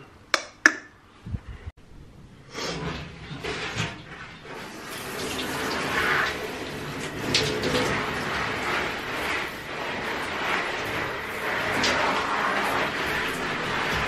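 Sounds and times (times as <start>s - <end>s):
shower head spraying water: 4.4s - 14.0s.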